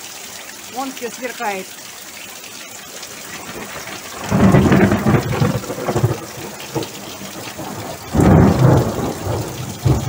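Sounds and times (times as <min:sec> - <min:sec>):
heavy rain on grass and puddles: 0:00.0 - 0:10.0
thunder rumbling: 0:03.3 - 0:10.0.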